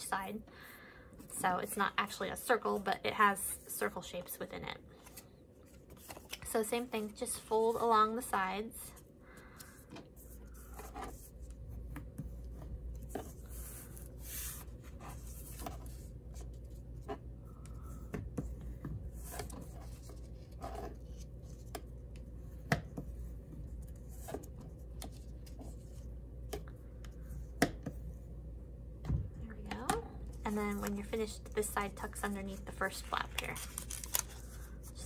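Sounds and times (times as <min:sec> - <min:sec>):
low steady hum: 0:00.0 - 0:35.0
paper rustling: 0:05.0 - 0:06.6, 0:30.4 - 0:35.0
bone folder drawn along paper: 0:12.5 - 0:16.8.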